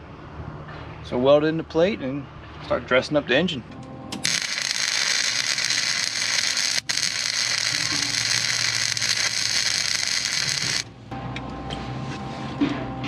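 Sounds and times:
welding arc crackling hiss: 4.2s - 10.8s.

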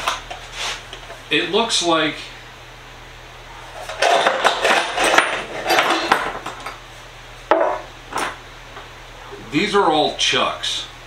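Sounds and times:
metal parts rattling in a tin: 3.8s - 6.6s
metal parts knocking down: 3.9s - 6.6s.

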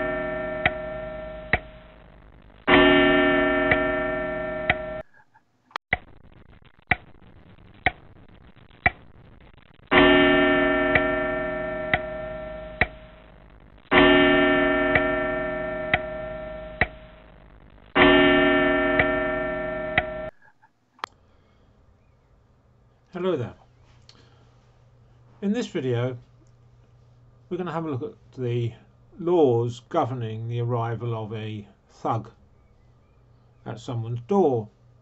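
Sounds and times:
deep bell chime: 0.0s - 1.2s
clock ticking: 0.6s - 0.9s, 11.8s - 13.2s, 14.9s - 17.1s.

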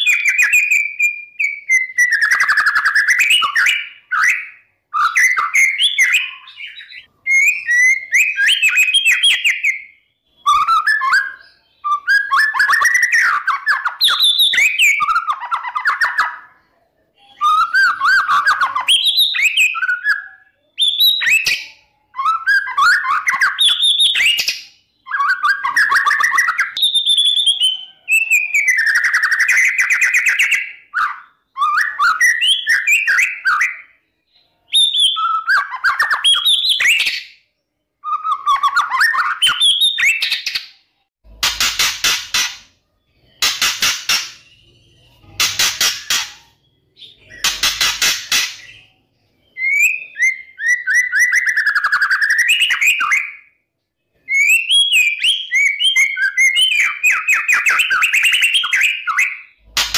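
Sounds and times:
bird singing trills and whistles: 0.0s - 40.8s, 41.5s - 59.9s.

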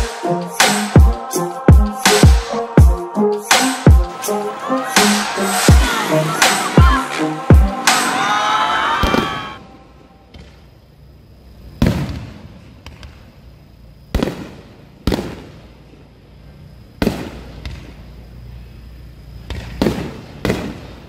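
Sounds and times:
fireworks bangs with echo: 14.1s - 15.7s, 17.0s - 17.9s, 19.6s - 21.0s.

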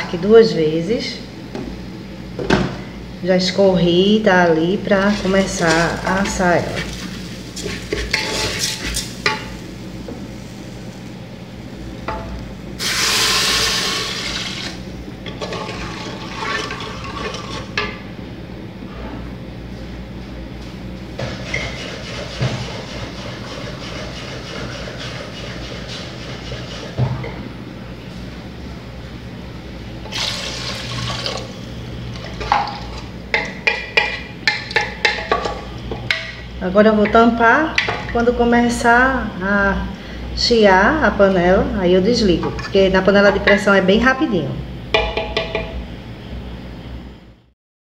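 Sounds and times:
wooden spoon scraping rice: 5.0s - 9.2s, 21.4s - 27.0s
water hissing on hot rice: 12.8s - 14.8s
water poured into pot: 30.1s - 31.5s
wooden spoon knocking pot: 45.0s - 45.8s.

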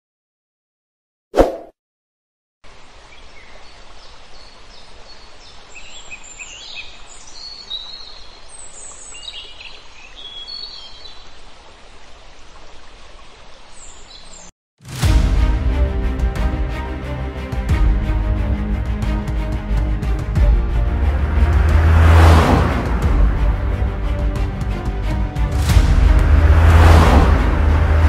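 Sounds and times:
birds chirping: 2.9s - 11.4s, 13.4s - 14.5s.

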